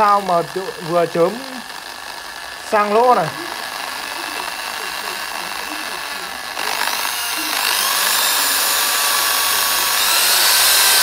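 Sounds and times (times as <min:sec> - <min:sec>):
electric drill motor whine: 0:00.0 - 0:11.0.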